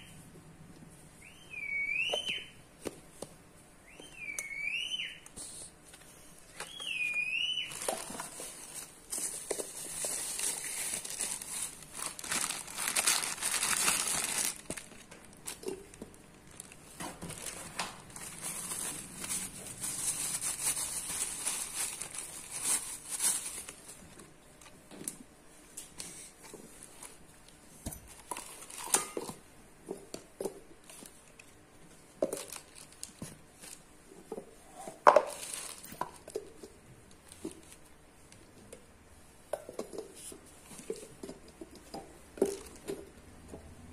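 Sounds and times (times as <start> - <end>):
plastic bags crinkling: 7.5 - 24.2, 28.1 - 29.4, 32.2 - 33.9, 35.0 - 36.4.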